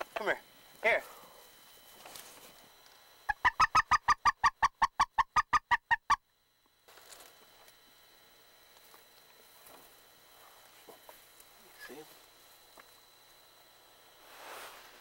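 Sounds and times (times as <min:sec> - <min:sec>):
goose call clucking: 0:03.3 - 0:06.2.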